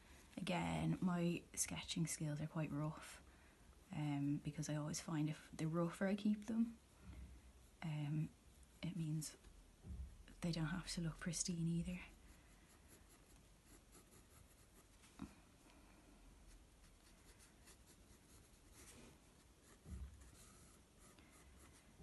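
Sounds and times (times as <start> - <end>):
pencil scratching on paper: 12.1 - 15.0, 16.5 - 22.0.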